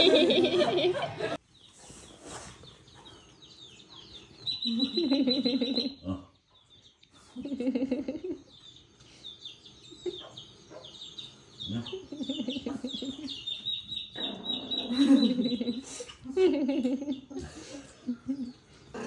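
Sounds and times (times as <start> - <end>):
cartoon chick peeping chirps: 4.4 - 6.0.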